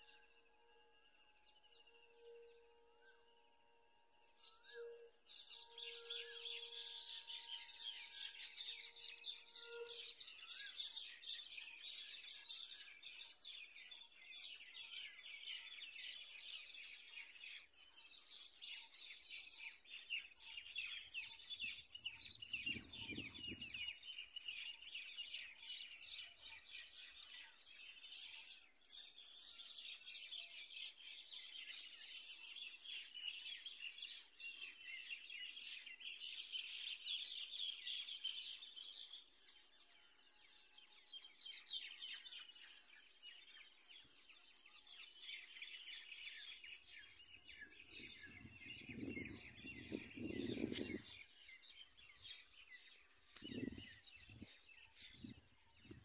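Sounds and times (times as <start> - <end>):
small birds chirping: 4.4 - 56.0.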